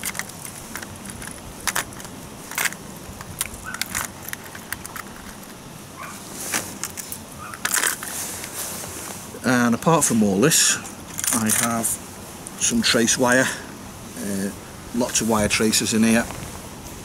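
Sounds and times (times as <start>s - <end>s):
lures clicking in plastic tackle box: 0.0s - 5.6s
steady outdoor hiss: 0.0s - 17.0s.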